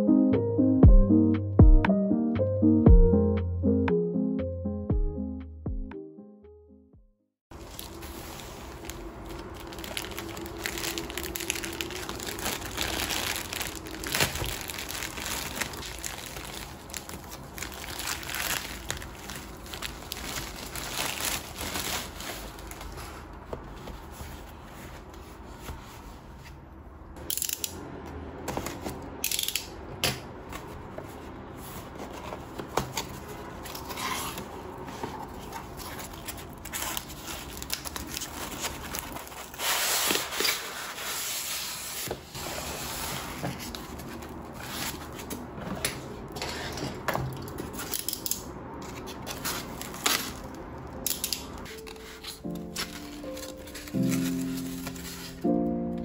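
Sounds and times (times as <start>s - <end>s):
plastic bag rustling and tearing: 7.5s - 24.7s, 33.1s - 45.5s, 48.9s - 55.6s
styrofoam rubbing and scraping: 38.5s - 43.5s.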